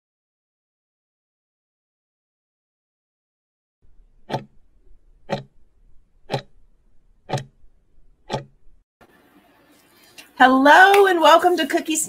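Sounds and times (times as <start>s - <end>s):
clock ticks: 4.2s - 5.6s, 6.2s - 6.6s, 7.2s - 8.6s.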